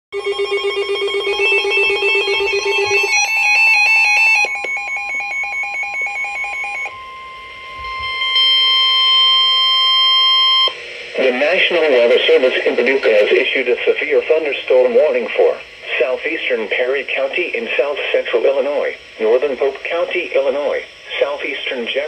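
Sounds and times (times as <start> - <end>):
fast electronic beeping: 0.2 - 7.0
steady high alert tone: 0.2 - 13.4.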